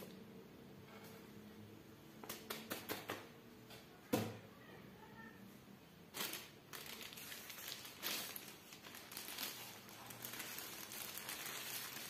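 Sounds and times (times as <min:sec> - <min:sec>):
plastic wrapping crinkling: 0:06.1 - 0:12.0.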